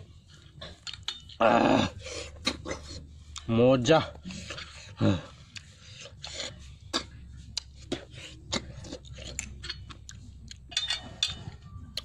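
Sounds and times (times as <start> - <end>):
chewing wet smacks: 0.4 - 1.4, 4.2 - 10.6.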